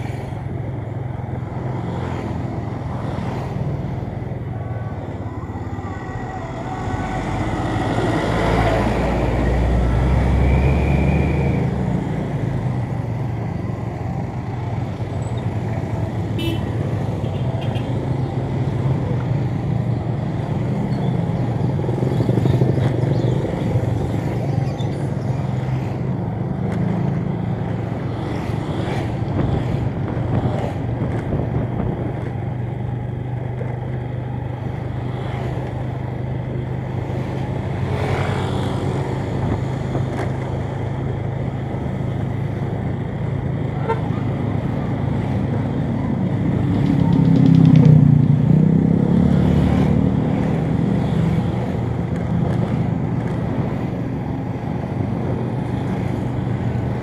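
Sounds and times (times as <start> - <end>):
passing motorbikes and cars: 0.0 - 57.0
road noise: 0.0 - 57.0
motorcycle engine cruising: 19.3 - 57.0.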